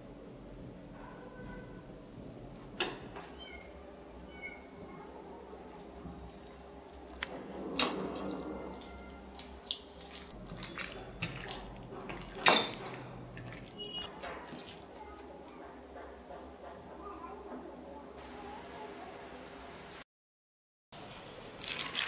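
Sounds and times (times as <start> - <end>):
wet squelching of hand mixing: 4.3 - 16.3, 21.6 - 22.0.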